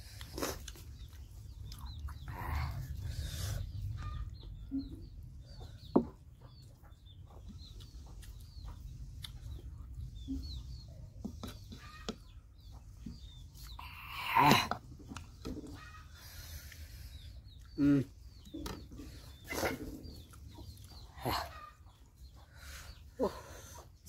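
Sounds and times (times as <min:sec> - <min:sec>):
people eating with hands: 0:00.0 - 0:24.0
small birds chirping: 0:00.0 - 0:24.0.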